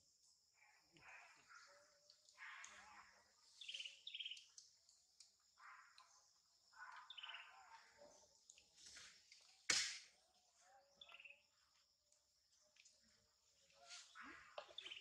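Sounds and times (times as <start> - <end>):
short bird chirps: 3.6 - 4.5.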